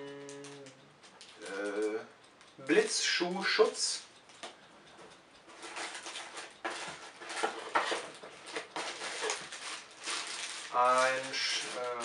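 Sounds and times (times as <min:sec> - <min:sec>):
plastic bags and cardboard rustling: 0:05.6 - 0:12.0.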